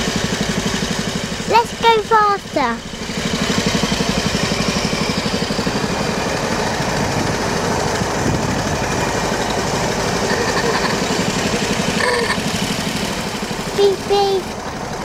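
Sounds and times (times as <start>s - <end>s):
motorcycle engine chugging: 0.0s - 15.0s.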